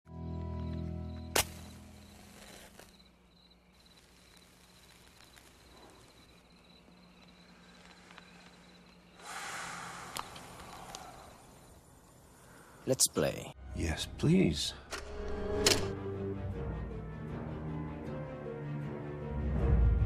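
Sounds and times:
breathy hiss: 0:03.8 - 0:06.6, 0:07.3 - 0:13.2.

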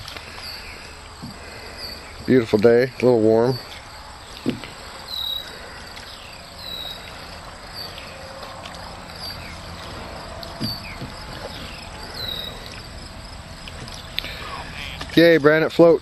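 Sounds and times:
paddle pulling through water: 0:00.0 - 0:15.9
high chirping calls: 0:03.5 - 0:08.3, 0:10.6 - 0:12.9
low knocks: 0:10.5 - 0:11.8.

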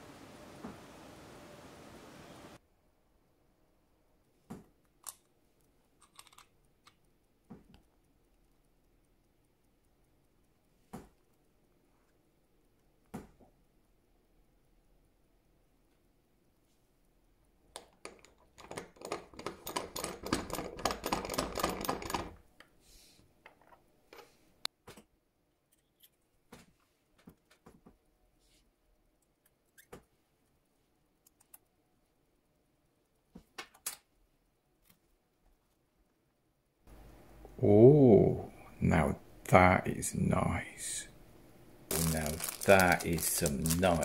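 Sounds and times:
small metal clicks and scrapes: 0:05.0 - 0:07.1, 0:25.7 - 0:26.3.

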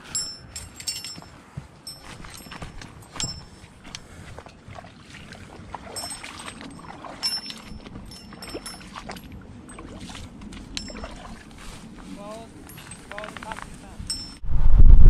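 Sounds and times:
wind buffeting microphone: 0:00.0 - 0:15.0
footsteps through long grass: 0:10.0 - 0:14.0.

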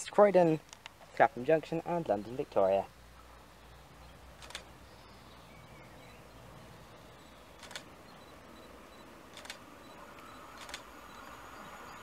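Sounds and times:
quiet outdoor background noise: 0:00.0 - 0:12.0
camera shutter clicks: 0:04.4 - 0:04.7, 0:07.6 - 0:07.9, 0:09.3 - 0:10.9.

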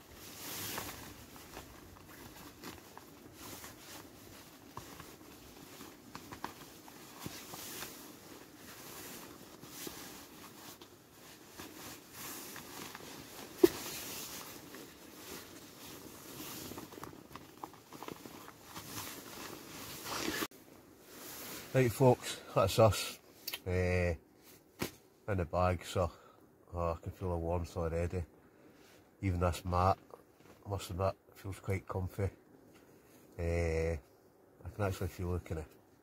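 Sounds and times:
bootlaces scraping through eyelets: 0:00.0 - 0:20.5
clothing rustling: 0:00.0 - 0:23.4.

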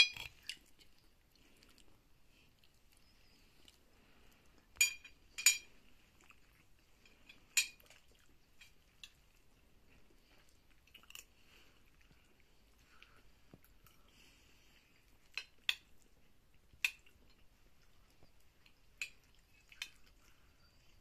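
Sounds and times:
cutlery clinking on plates: 0:00.0 - 0:00.7, 0:04.8 - 0:05.7, 0:07.0 - 0:08.0.

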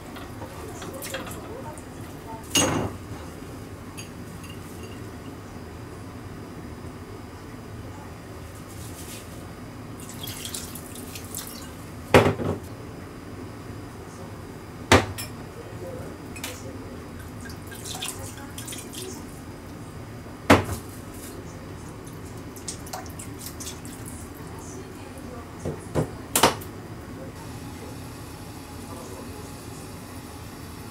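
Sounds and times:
bottles knocking on counter: 0:12.2 - 0:12.6.

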